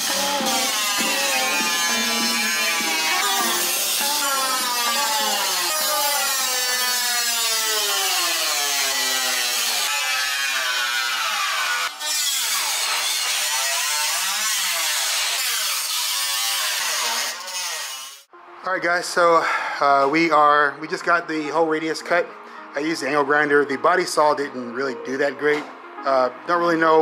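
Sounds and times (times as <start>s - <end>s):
angle grinder cutting sheet metal: 0.0s - 18.3s.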